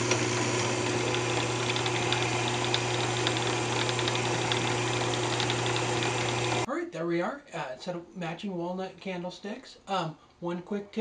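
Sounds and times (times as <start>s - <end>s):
paper towel rubbing spinning wood: 0.0s - 6.7s
wood lathe humming: 0.0s - 6.7s.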